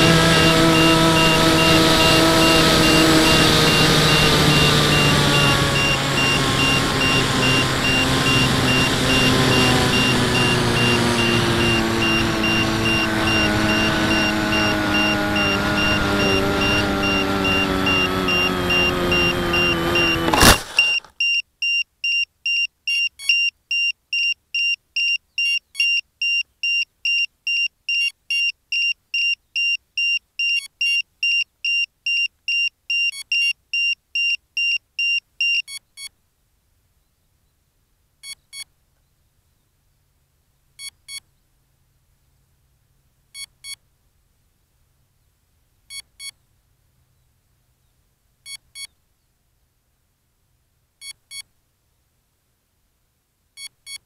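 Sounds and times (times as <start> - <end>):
model plane electric motor: 0.0 - 21.1
plane hitting the ground: 0.0 - 21.1
electronic beeper beeping: 0.4 - 21.1.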